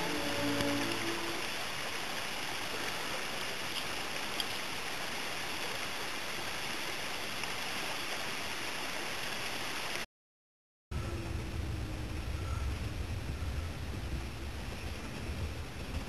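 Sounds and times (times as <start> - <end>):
creek water running: 0.0 - 10.1.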